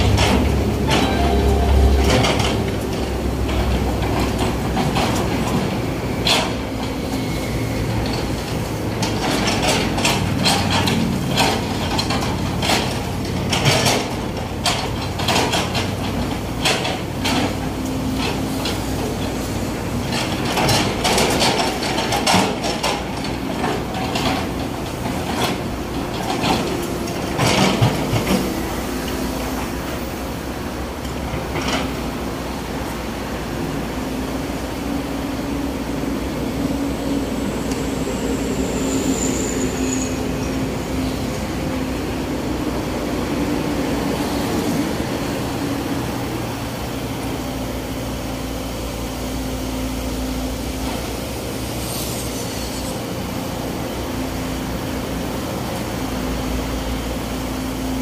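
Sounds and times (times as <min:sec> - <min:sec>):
excavator engine running: 0:00.0 - 0:51.8.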